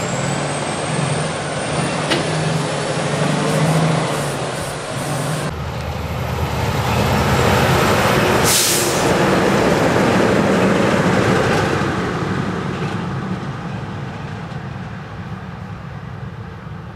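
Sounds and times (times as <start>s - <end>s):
truck passing at speed: 0.0s - 13.6s
hissing rush of air: 2.6s - 5.5s, 8.4s - 9.2s.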